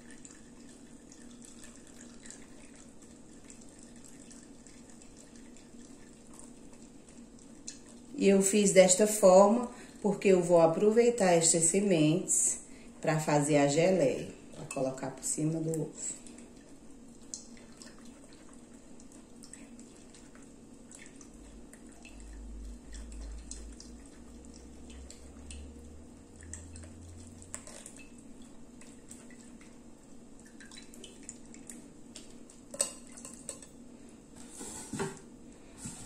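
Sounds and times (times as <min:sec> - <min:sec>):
juice dripping: 0:00.0 - 0:11.3, 0:12.7 - 0:34.4
spatula scraping metal sieve: 0:34.4 - 0:35.1.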